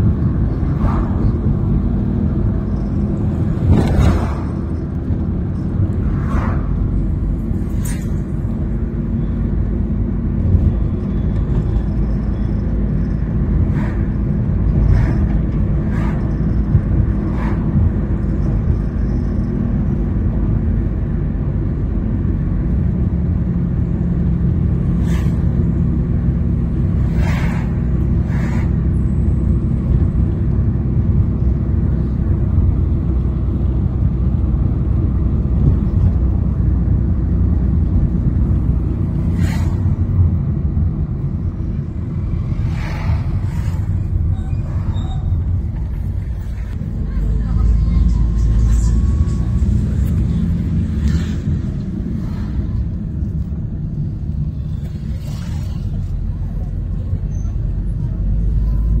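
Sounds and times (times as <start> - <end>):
car engine and road rumble: 0.0 - 59.0.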